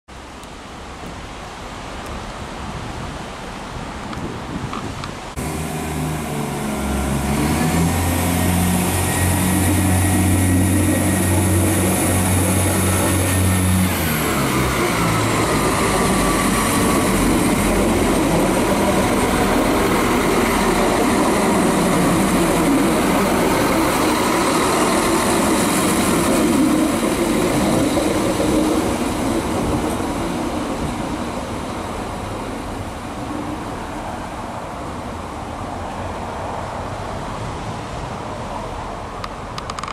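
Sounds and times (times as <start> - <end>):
wheels rolling on track: 4.1 - 31.2, 39.2 - 39.9
train diesel engine drone: 5.0 - 39.9
falling whine: 5.4 - 29.6.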